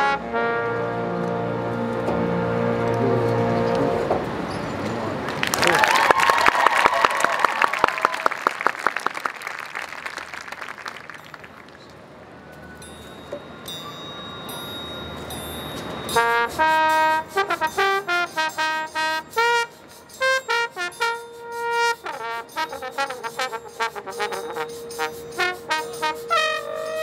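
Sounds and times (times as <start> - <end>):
trombone playing short notes: 0.0 - 4.1, 16.2 - 27.0
long held note: 16.1 - 27.0.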